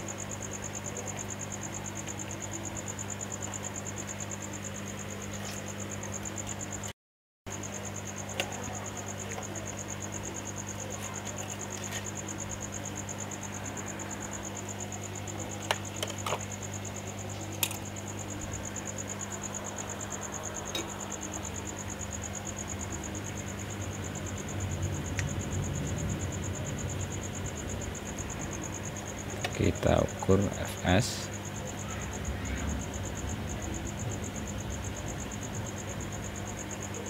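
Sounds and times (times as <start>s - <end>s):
cricket trilling: 0.0s - 6.9s, 7.5s - 37.0s
low electrical hum: 7.5s - 37.0s.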